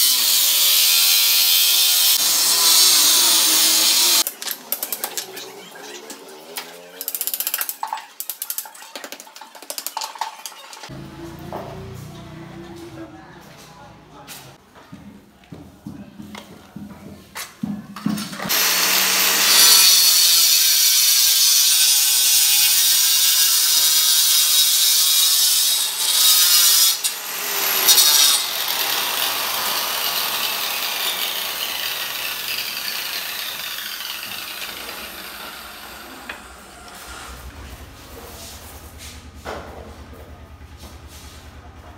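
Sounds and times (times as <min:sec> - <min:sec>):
electric marble cutter whining: 0:00.0 - 0:07.4, 0:18.4 - 0:37.6.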